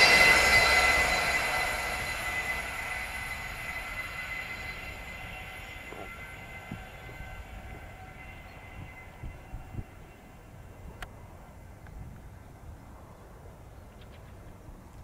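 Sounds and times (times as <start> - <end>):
high steady ringing tones: 0.0 - 13.1
train passing: 0.0 - 14.9.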